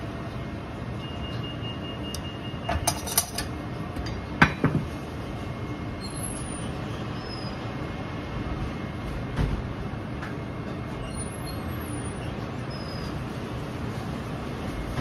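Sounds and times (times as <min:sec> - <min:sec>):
metal utensils clinking on ceramic bowl: 0:02.8 - 0:03.5.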